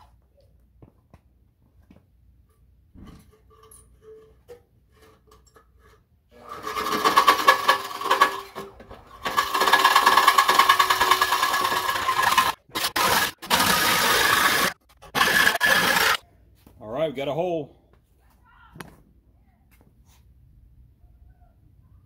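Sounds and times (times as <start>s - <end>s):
reciprocating saw cutting steel: 6.3s - 16.2s.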